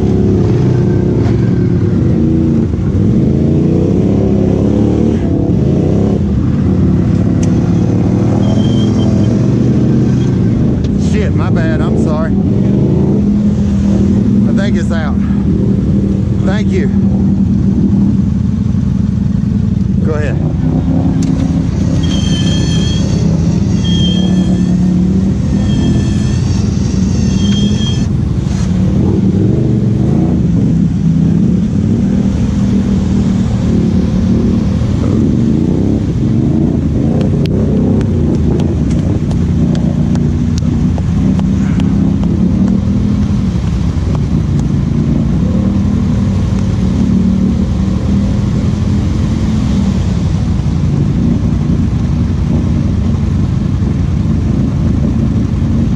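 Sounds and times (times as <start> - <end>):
atv engines idling: 13.4 - 48.6.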